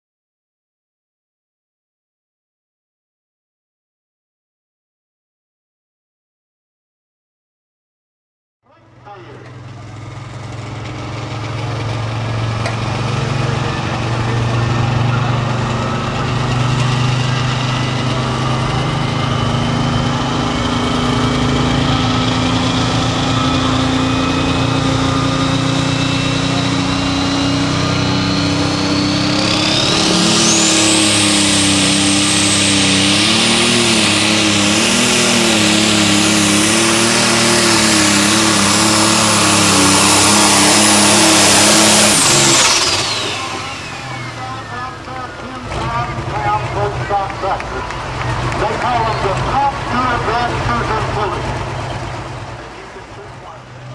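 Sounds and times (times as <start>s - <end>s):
diesel engine at high revs: 8.7s - 53.9s
turbo whine: 10.9s - 53.9s.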